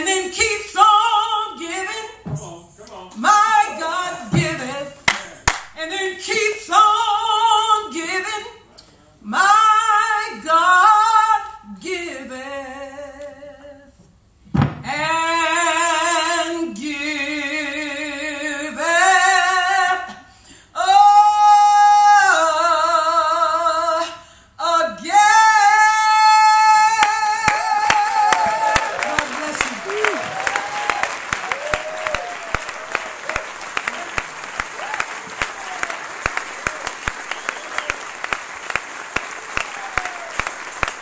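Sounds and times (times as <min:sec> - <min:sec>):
woman singing gospel solo: 0:00.0 - 0:02.4, 0:03.2 - 0:05.2, 0:05.8 - 0:08.6, 0:09.2 - 0:14.0, 0:14.8 - 0:30.2
singer breathing: 0:20.2 - 0:20.8, 0:24.2 - 0:24.6.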